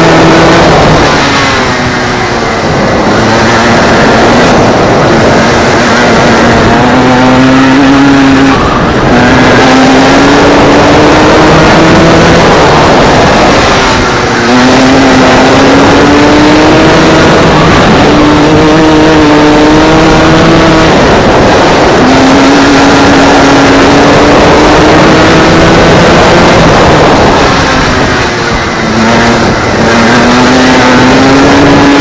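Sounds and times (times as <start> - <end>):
go-kart engine running hard: 0.0 - 32.0.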